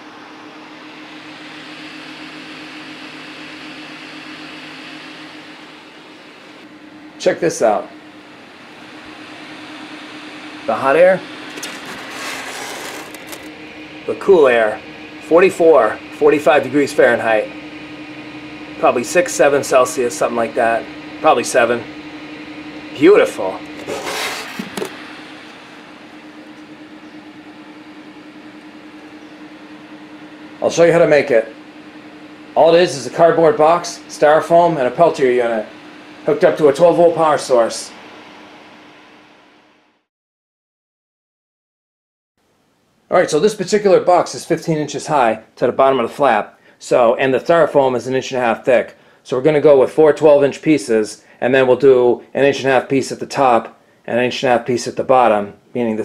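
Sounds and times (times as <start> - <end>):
cooling fans whirring: 0.0 - 40.1, 42.4 - 56.0
short scraping noise: 11.5 - 13.5, 23.8 - 24.9.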